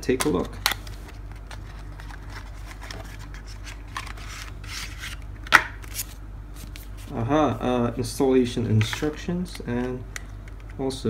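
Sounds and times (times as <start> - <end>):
paper and plastic rustling: 0.1 - 7.2
cardboard rubbing and scraping: 1.5 - 5.2.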